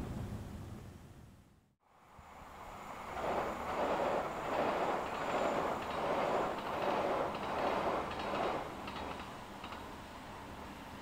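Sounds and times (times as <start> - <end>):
train wheels rumbling on rails: 2.2 - 11.0
faint clicks: 7.3 - 9.9.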